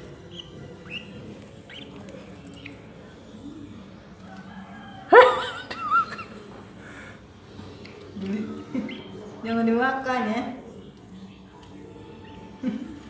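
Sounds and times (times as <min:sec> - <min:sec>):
parrots chirping: 0:00.0 - 0:03.2, 0:08.6 - 0:09.4
parrot squawking: 0:00.2 - 0:02.9.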